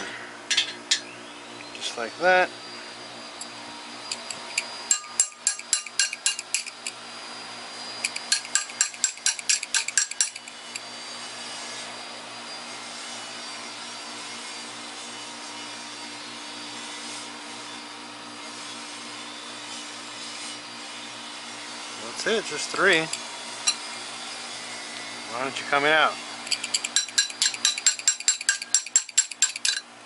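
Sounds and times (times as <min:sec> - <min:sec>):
ratchet wrench clicking: 0:04.1 - 0:07.0, 0:08.0 - 0:10.5, 0:26.4 - 0:29.8.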